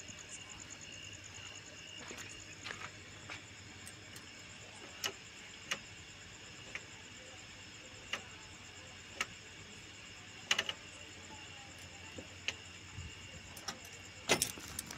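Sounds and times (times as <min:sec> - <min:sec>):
crickets chirring: 0:00.0 - 0:14.9
sharp clicks: 0:10.5 - 0:10.8.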